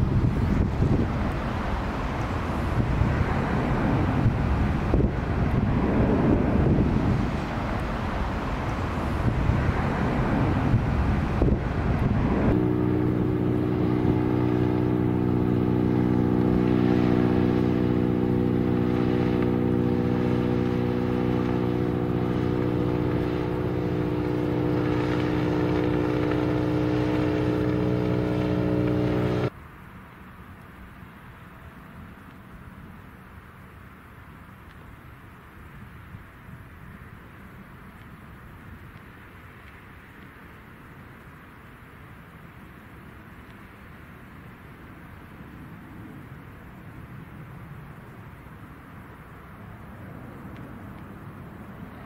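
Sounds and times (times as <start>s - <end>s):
airship engines droning: 0.0s - 29.5s
jet aircraft climbing: 0.0s - 29.5s.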